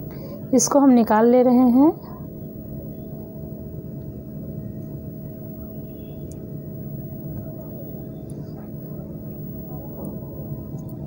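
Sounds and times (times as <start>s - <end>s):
faint constant tone: 0.0s - 11.0s
low mechanical hum: 0.0s - 11.0s.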